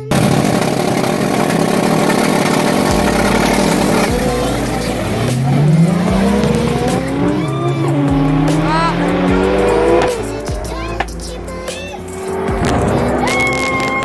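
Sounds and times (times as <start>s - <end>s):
car engines revving and accelerating: 0.0s - 14.0s.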